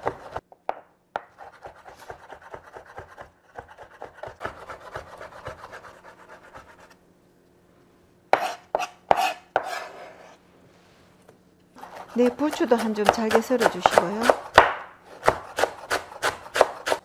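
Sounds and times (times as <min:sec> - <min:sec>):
knife chopping on wooden board: 0:00.0 - 0:06.8, 0:08.3 - 0:09.9, 0:11.8 - 0:17.0.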